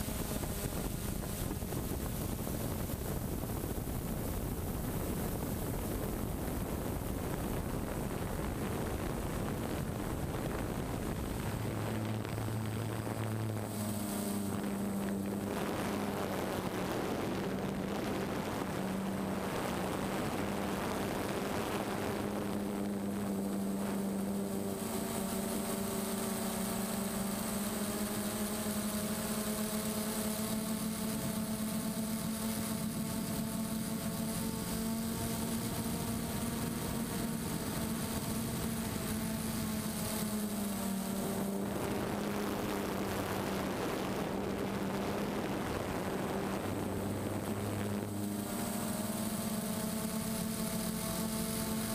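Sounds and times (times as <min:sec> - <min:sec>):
wind rush: 0:00.0 - 0:26.9
drone motors and propellers: 0:00.0 - 0:51.9.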